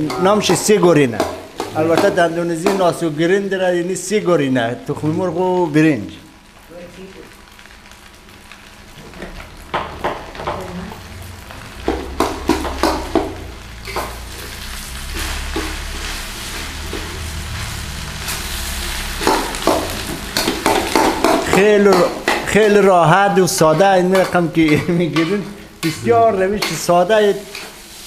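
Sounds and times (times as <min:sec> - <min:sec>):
rice sizzling in a wok: 0:00.0 - 0:28.0
metal spoon scraping a pan: 0:13.8 - 0:22.7, 0:23.6 - 0:28.0.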